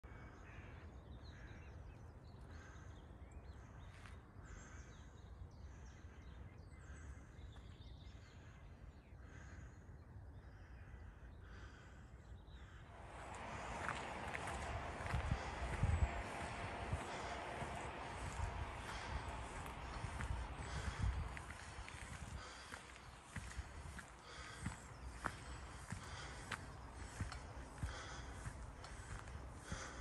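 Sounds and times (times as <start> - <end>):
faint bird calls: 0.0 - 30.0
low wind rumble: 12.6 - 30.0
scuffing noise: 13.0 - 30.0.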